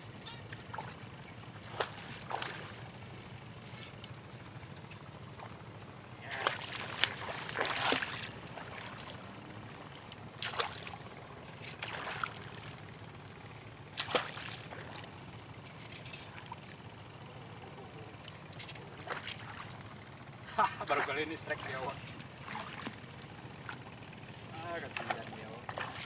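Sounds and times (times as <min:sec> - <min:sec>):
steady low hum: 0:00.0 - 0:26.0
water splashing and sloshing: 0:00.0 - 0:26.0.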